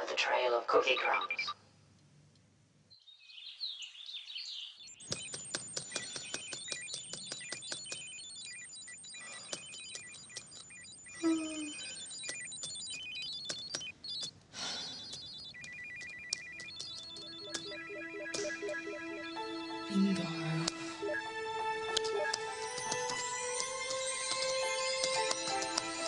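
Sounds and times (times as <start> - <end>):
fast typing on keyboard: 5.0 - 20.8, 22.0 - 26.0
electronic beeps and blips: 5.0 - 26.0
short high chirps: 10.7 - 13.2.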